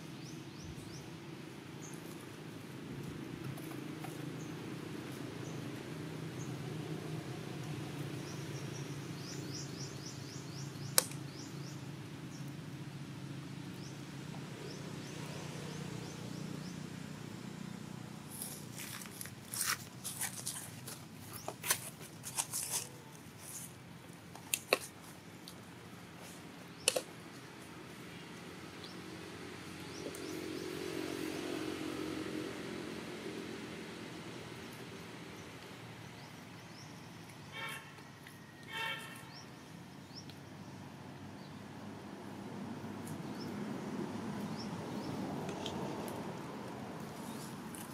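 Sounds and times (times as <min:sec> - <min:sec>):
sharp clicks and crackles: 0:10.9 - 0:11.2, 0:26.8 - 0:27.1.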